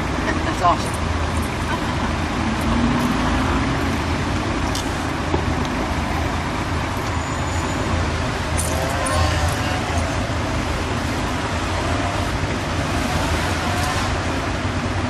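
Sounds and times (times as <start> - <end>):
road traffic: 0.0 - 15.0
engine revving: 2.1 - 4.6, 7.8 - 15.0.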